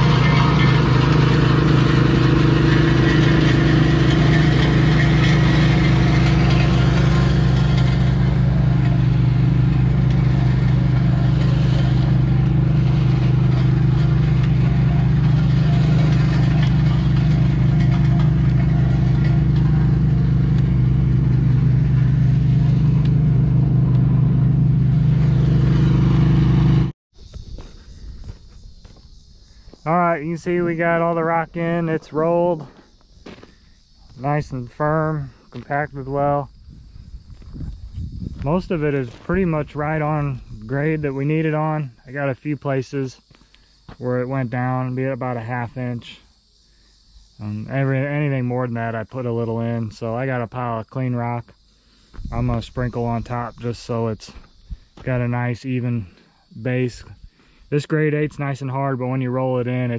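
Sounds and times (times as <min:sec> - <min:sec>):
diesel engine humming: 0:00.0 - 0:27.0.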